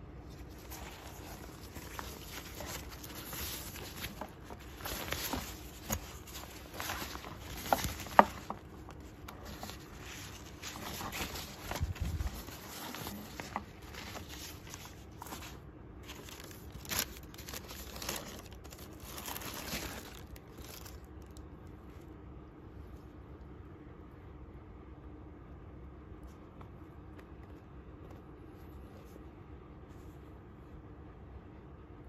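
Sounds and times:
tissue paper rustling: 0.1 - 21.4.

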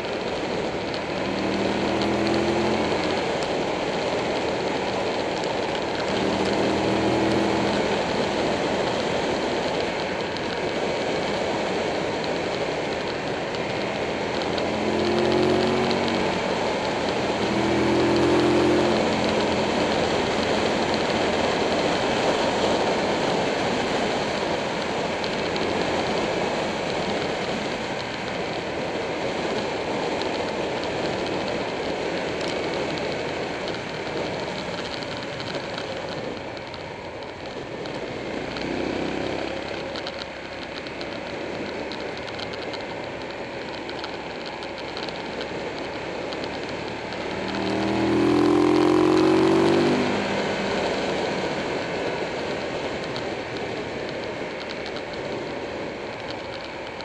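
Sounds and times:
motorcycle engine: 0.0 - 57.0
wind and road noise: 0.0 - 57.0.

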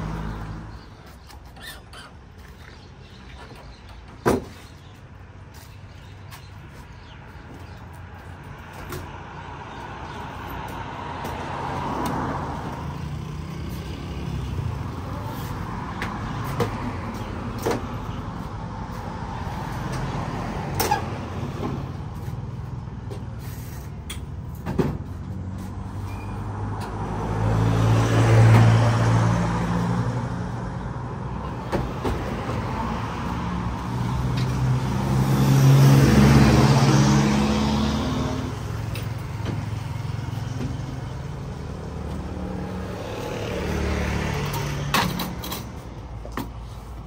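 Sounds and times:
road traffic hum: 0.0 - 47.0
vehicle passing: 25.1 - 45.8.

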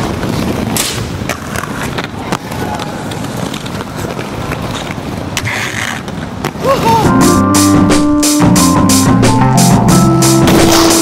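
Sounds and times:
skate wheels rolling on concrete: 0.0 - 7.3.

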